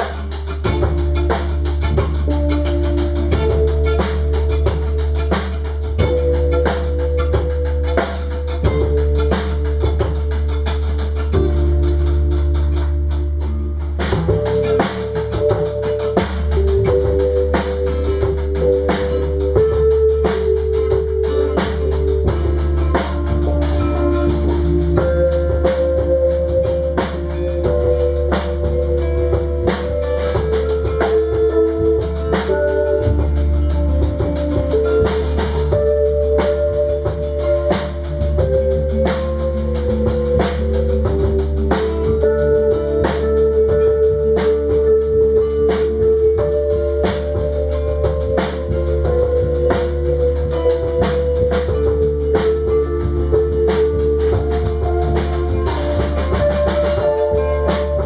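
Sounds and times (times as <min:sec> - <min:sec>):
drum kit with cymbals: 0:00.0 - 0:58.0
heavy low end bass: 0:00.0 - 0:58.0
keyboard chords: 0:00.0 - 0:58.0.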